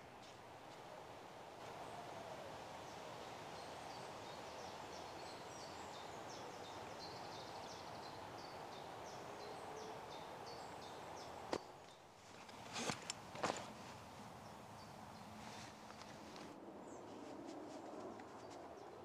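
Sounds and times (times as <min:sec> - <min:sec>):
small birds chirping: 0:02.8 - 0:17.2.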